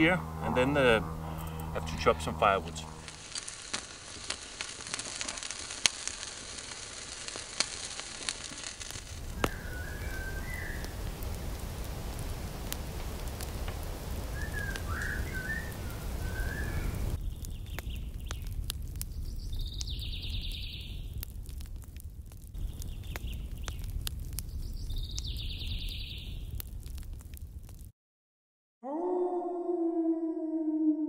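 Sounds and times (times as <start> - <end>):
low rumble: 0.0 - 3.3
campfire crackling: 0.0 - 27.9
birds chirping: 9.2 - 11.1, 14.2 - 21.2, 24.5 - 26.4.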